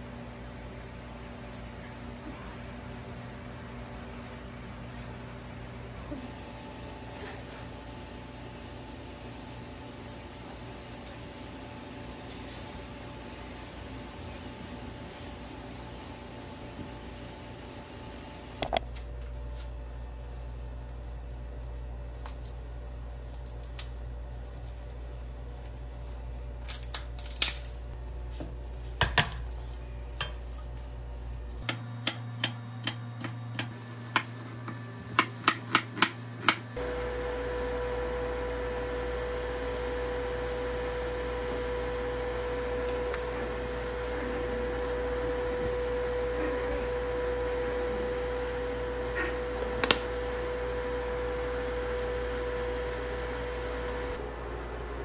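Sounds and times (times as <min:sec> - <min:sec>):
cooker hum: 0:00.0 - 0:55.0.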